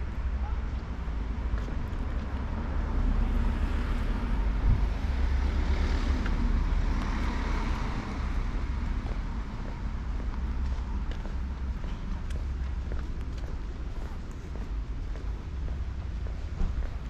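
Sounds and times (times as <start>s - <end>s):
wind buffeting microphone: 4.4s - 5.4s.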